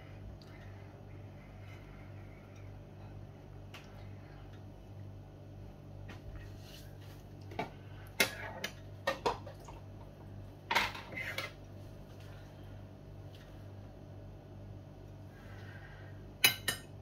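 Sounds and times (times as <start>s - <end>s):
steady low hum: 0.0s - 17.0s
dishes and cutlery clinking: 16.4s - 17.0s.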